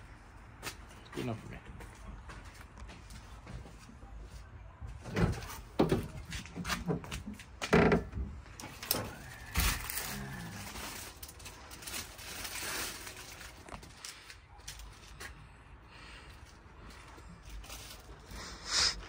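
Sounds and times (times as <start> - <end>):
plastic packaging rustling: 8.7 - 15.2, 17.3 - 18.8.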